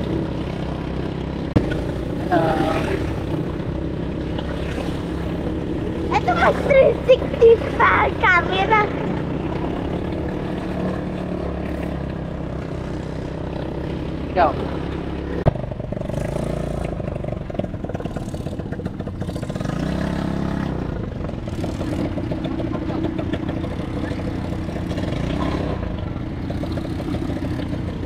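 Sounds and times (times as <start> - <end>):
quad engines revving: 0.0 - 28.0.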